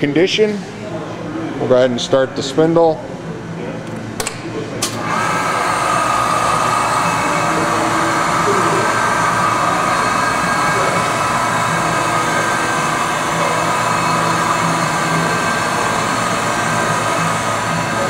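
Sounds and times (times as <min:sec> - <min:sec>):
grinder motor humming and whining: 0:04.9 - 0:18.0.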